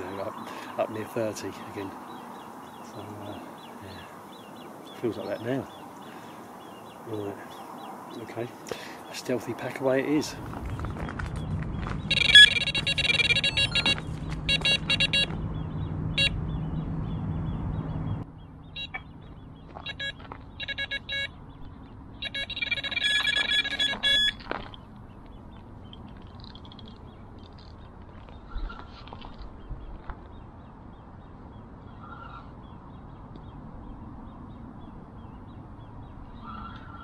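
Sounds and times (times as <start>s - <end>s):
high-pitched alarm beeps: 12.1s - 15.3s, 19.9s - 21.3s, 22.2s - 24.4s.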